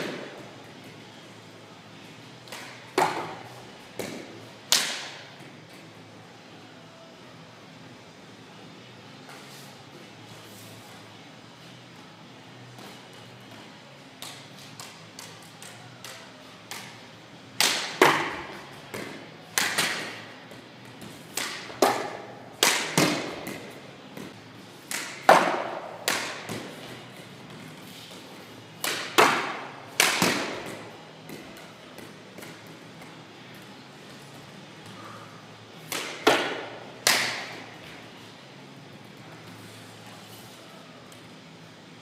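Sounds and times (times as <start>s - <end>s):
hard stick shots echoing: 2.4s - 5.3s, 17.6s - 27.6s, 28.8s - 33.1s, 35.8s - 37.8s.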